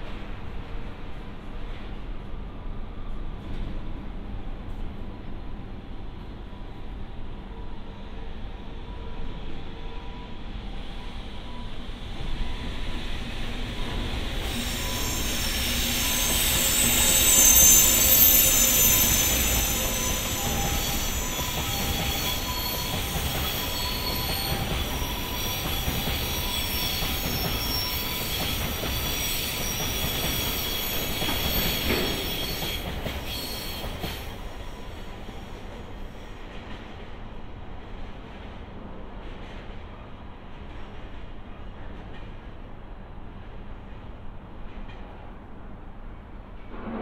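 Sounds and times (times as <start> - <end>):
train wheels squealing: 7.4 - 37.0
train rumble: 11.2 - 47.0.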